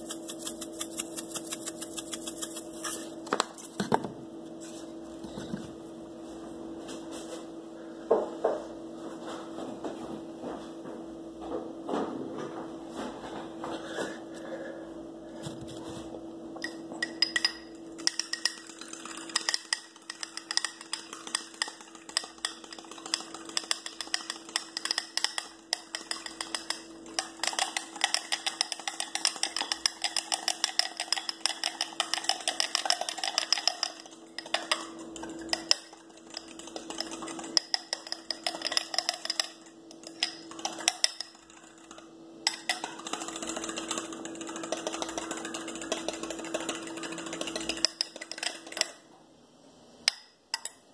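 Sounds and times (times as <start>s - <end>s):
steady low hum: 0.0s - 50.9s
utensil clicking against glass bowl: 16.6s - 49.0s, 50.1s - 50.8s.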